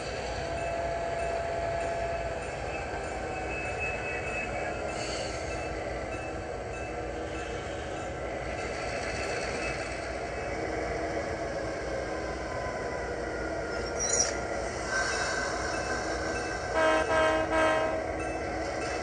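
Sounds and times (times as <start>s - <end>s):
model locomotive engine sound: 0.0s - 19.0s
brief high squeal: 13.8s - 14.4s
locomotive horn blasts: 16.7s - 18.1s.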